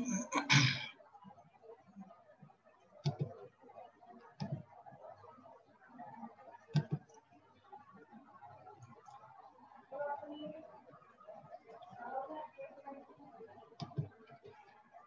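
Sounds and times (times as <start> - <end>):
computer mouse clicking: 3.0 - 3.4, 6.7 - 7.2.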